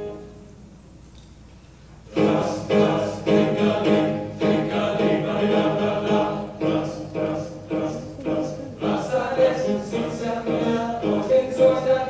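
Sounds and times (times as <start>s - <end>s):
boys' choir singing in harmony: 2.1s - 12.0s.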